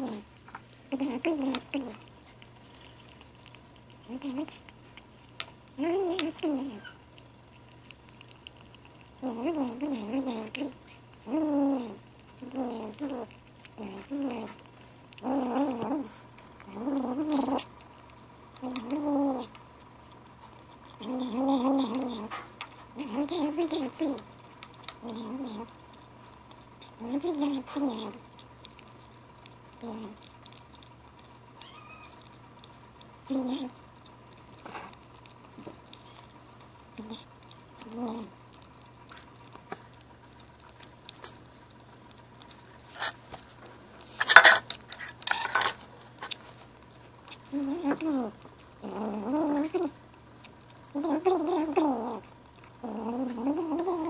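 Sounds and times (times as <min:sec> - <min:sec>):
kitten growling while eating: 0:00.0 - 0:54.0.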